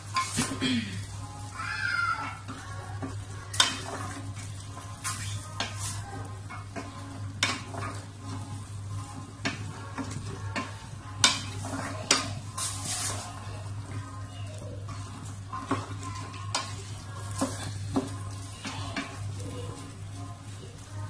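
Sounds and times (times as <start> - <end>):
food sizzling: 0.0 - 21.0
spatula scraping a metal pot: 1.7 - 20.4.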